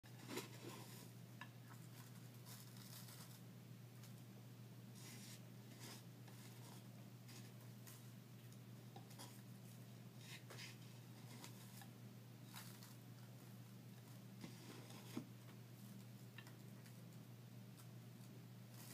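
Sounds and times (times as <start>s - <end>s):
paper packet rustling: 1.8s - 3.4s.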